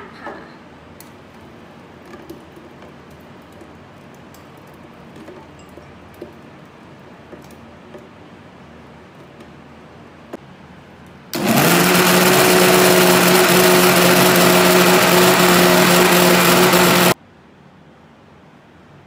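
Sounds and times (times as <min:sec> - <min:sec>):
countertop blender motor running: 0:11.4 - 0:17.2.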